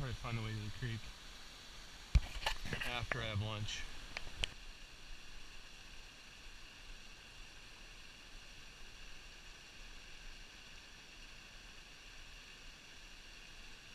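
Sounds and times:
distant waterfall hiss: 0.0s - 13.9s.

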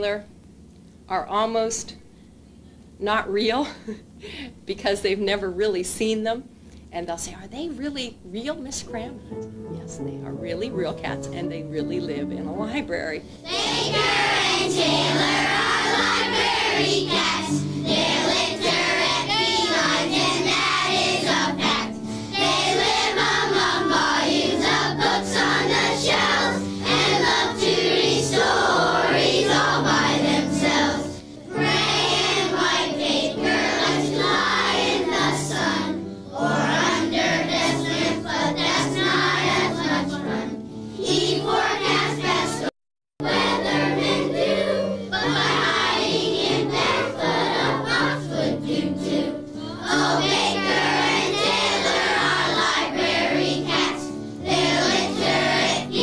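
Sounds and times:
instrumental accompaniment: 8.9s - 42.5s
children's choir singing: 13.4s - 56.0s.

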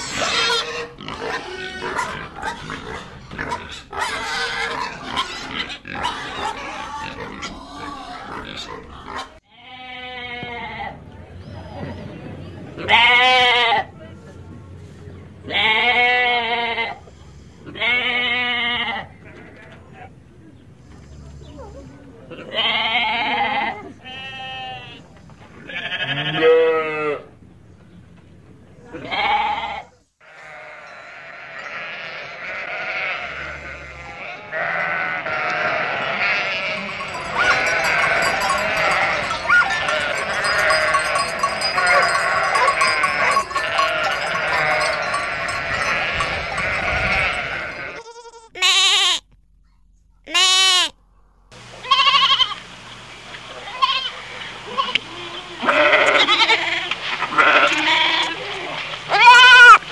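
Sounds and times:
goat bleating: 22.4s - 25.0s, 25.6s - 27.2s, 29.0s - 49.4s, 50.3s - 51.0s, 51.8s - 52.6s, 53.6s - 59.8s
sheep bleating: 25.7s - 27.2s, 29.0s - 49.3s, 50.3s - 51.0s, 51.8s - 52.6s, 53.7s - 58.5s, 59.1s - 59.8s
flock bleating in chorus: 29.1s - 49.2s, 55.6s - 56.8s.

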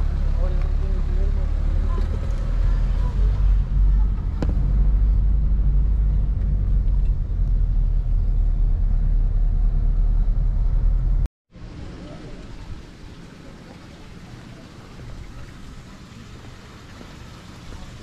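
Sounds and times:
car road and engine rumble: 0.0s - 12.9s.

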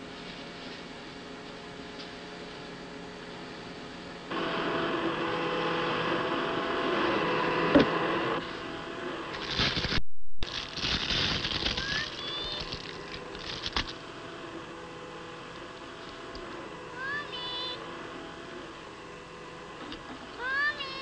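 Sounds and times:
vacuum cleaner motor whining: 0.0s - 21.0s
small clicks and rattles: 9.4s - 14.0s.

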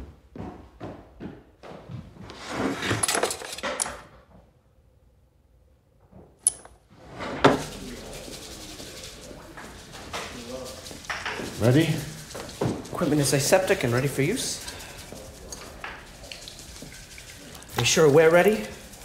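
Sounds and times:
footsteps on a hard floor: 0.0s - 2.7s, 7.5s - 18.0s
sharp clinks: 6.4s - 6.8s
rustling: 6.9s - 19.0s.

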